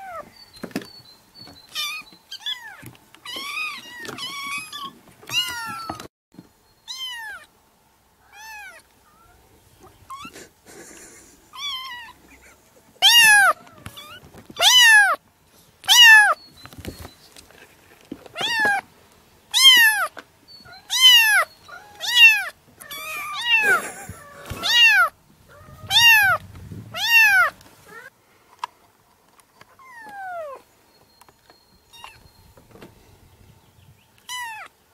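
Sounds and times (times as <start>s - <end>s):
kitten meowing: 6.9s - 7.5s, 8.2s - 9.4s, 11.6s - 12.2s, 13.0s - 15.2s, 15.8s - 16.4s, 18.4s - 18.8s, 19.5s - 20.1s, 20.7s - 28.1s, 31.9s - 32.2s, 34.3s - 34.7s.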